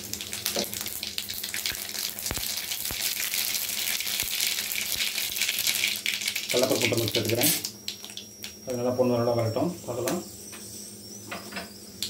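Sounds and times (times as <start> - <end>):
seeds sizzling in hot oil: 0.0 - 8.8
sharp popping seeds: 0.2 - 8.6.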